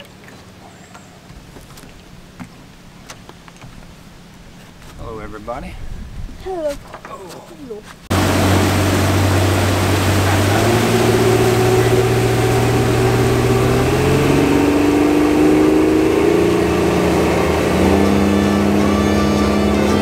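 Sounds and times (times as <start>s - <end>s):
outboard motor running: 0.0s - 5.2s, 8.1s - 20.0s
wind and water spray rushing: 7.6s - 18.8s.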